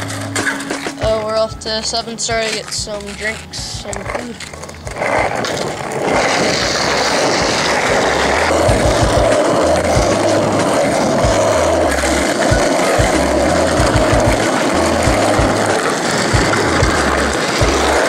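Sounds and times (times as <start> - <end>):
low bass line: 0.0 - 18.0
low thumps: 0.0 - 18.0
skateboard wheels rolling: 0.0 - 18.0.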